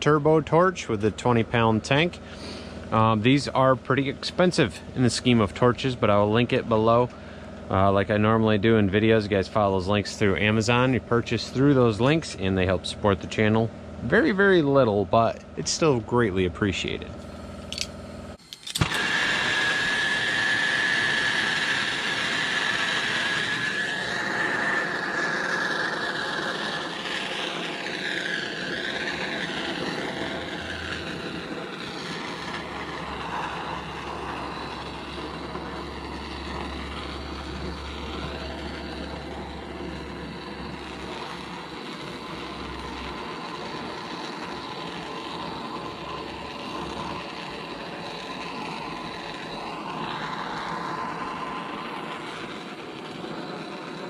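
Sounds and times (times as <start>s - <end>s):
torch flame hissing: 0.0s - 54.0s
torch ignition click: 17.2s - 54.0s
wavering whistle: 18.8s - 52.6s.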